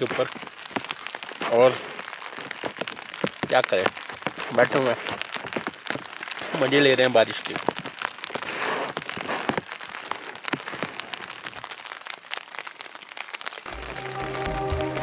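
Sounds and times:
rain on tent fabric: 0:00.0 - 0:15.0
background music: 0:13.7 - 0:15.0.

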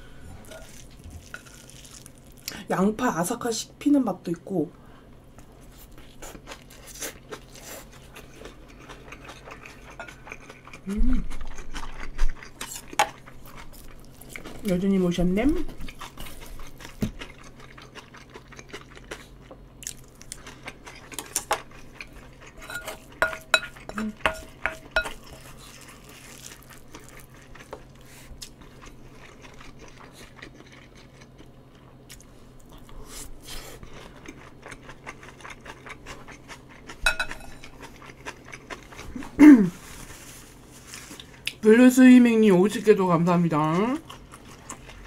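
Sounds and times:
chewing: 0:05.7 - 0:14.6, 0:15.8 - 0:39.4, 0:43.6 - 0:45.0
cutlery clinking against a bowl: 0:22.6 - 0:25.5, 0:37.0 - 0:37.7.

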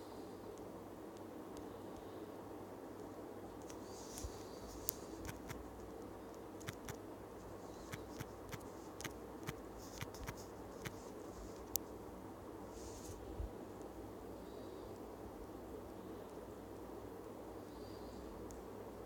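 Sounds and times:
faint steady hum: 0:00.0 - 0:19.0
typing on smartphone keyboard: 0:06.6 - 0:07.0, 0:07.9 - 0:11.0.

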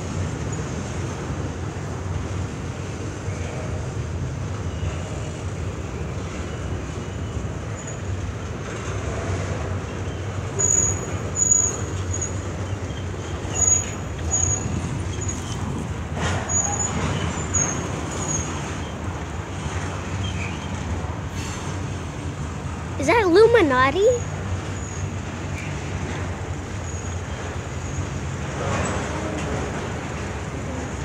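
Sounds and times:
freight train wheels rumbling on rails: 0:00.0 - 0:31.0
high wheel squeaks: 0:10.0 - 0:19.1, 0:20.1 - 0:20.8, 0:26.8 - 0:29.7.

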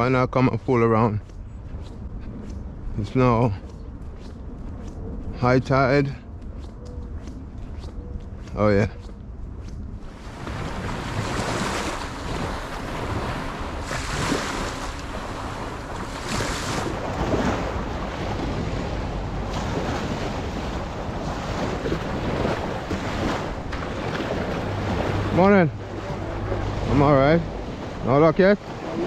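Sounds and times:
wind buffeting microphone: 0:00.0 - 0:29.0
small waves breaking on sand: 0:10.0 - 0:29.0.

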